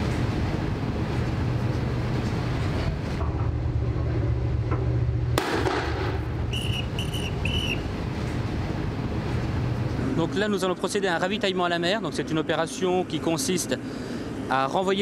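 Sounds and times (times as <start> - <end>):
low ship rumble: 0.0 - 13.4
wind: 0.0 - 15.0
rifle shot: 5.4 - 6.2
short high beeps: 6.5 - 7.8.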